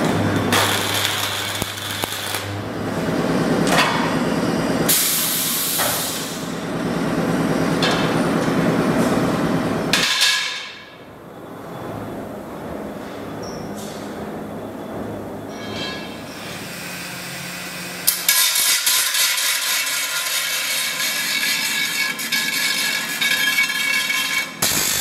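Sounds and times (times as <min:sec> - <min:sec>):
hissing crackling welding sparks: 0:00.0 - 0:02.6, 0:16.7 - 0:25.0.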